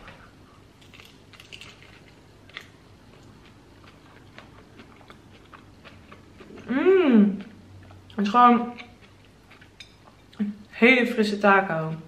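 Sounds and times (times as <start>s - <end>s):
person chewing crisp lettuce: 0.1s - 10.4s.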